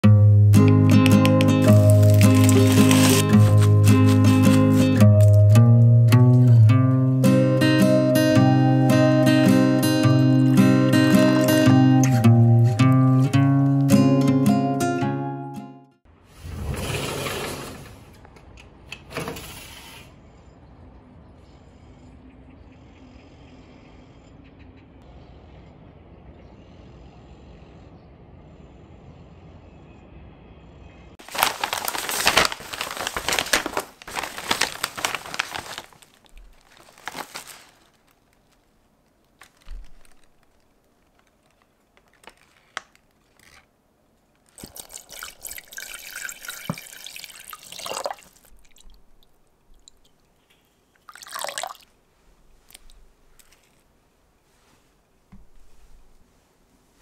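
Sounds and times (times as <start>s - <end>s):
water running and pouring: 1.6s - 4.6s, 44.5s - 50.3s, 51.0s - 51.9s.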